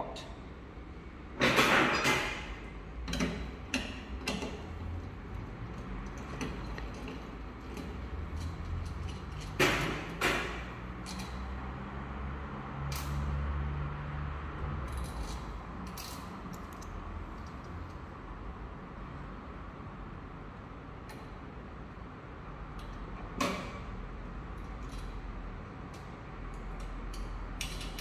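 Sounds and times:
metal wrench clicks and scrapes: 0:05.6 - 0:09.9, 0:10.7 - 0:11.8, 0:12.8 - 0:13.4, 0:14.7 - 0:18.0, 0:24.6 - 0:25.3, 0:25.9 - 0:28.0.

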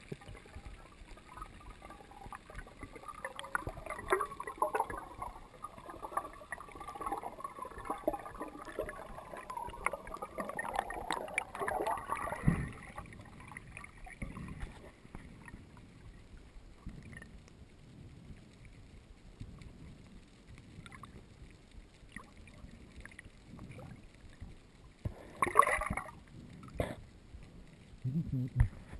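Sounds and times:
rushing water: 0:00.0 - 0:16.1, 0:22.0 - 0:27.0
muffled water sloshing: 0:00.0 - 0:17.4
crackling bubbles underwater: 0:00.0 - 0:28.9.

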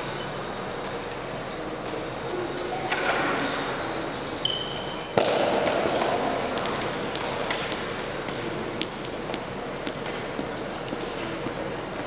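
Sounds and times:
high squeaks: 0:04.4 - 0:05.3.

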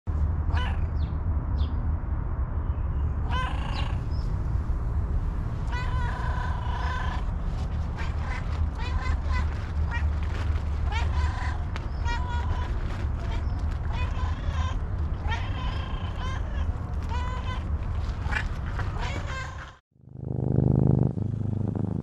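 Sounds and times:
low rumble: 0:00.1 - 0:19.5
cat meowing: 0:05.7 - 0:07.3, 0:07.9 - 0:19.8.

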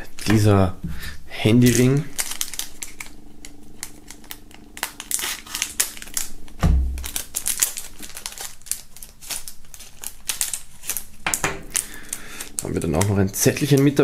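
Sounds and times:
plastic wrap crinkling: 0:00.0 - 0:14.0
dull thump: 0:06.6 - 0:07.0.

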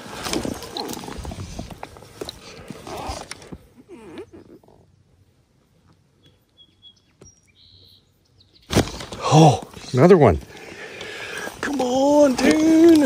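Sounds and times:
fishing gear knocks and rustles: 0:00.0 - 0:03.7, 0:08.7 - 0:13.0
faint high bird chirps: 0:06.2 - 0:08.7.

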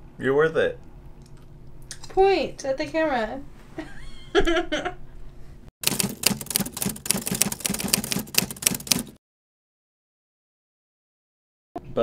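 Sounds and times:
rapid mechanical clicking: 0:05.8 - 0:09.2.

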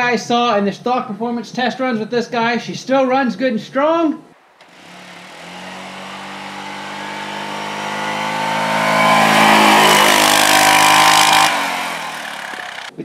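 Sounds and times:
single-cylinder engine running: 0:04.6 - 0:13.0.

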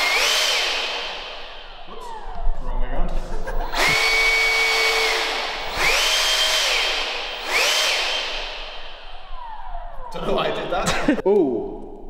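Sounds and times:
electric fan whine: 0:00.0 - 0:11.0.

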